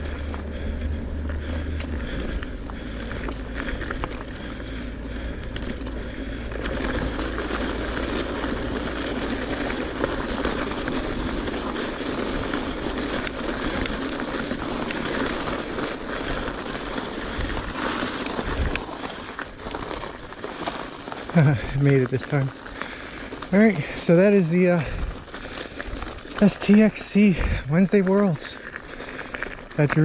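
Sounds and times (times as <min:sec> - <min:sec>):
bike clicks and rattles: 0:00.0 - 0:30.0
bike tyres rolling on dirt: 0:00.0 - 0:30.0.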